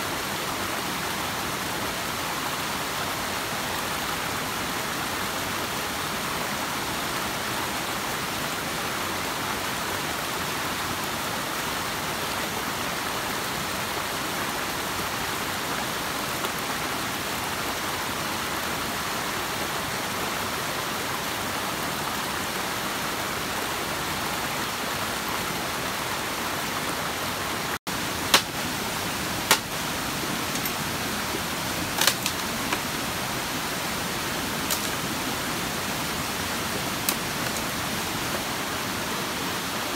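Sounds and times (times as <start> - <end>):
stream rushing over rocks: 0.0 - 39.9
wooden poles knocking on rock: 28.3 - 28.6, 29.4 - 29.8.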